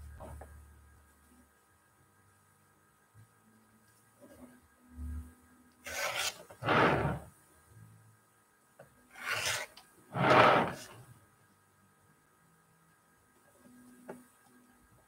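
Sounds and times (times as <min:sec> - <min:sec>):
rotary cutter cutting fabric: 0:05.9 - 0:07.2, 0:09.2 - 0:11.0.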